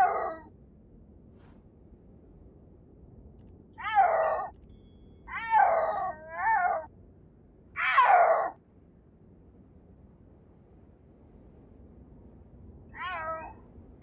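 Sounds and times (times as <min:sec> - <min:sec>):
snow leopard yowling: 0:00.0 - 0:00.5, 0:03.8 - 0:04.5, 0:05.3 - 0:06.9, 0:07.8 - 0:08.6, 0:13.0 - 0:13.6.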